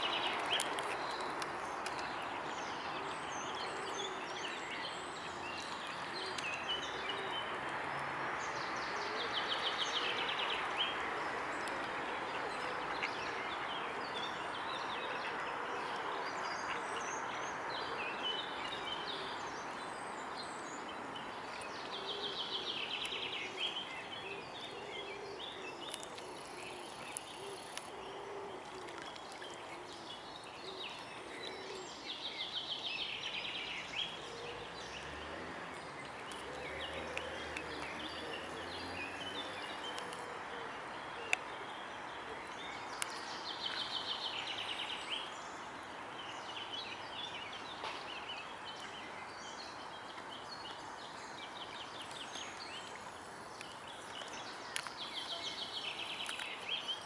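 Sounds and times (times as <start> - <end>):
swan splashing in water: 28.6 - 30.1.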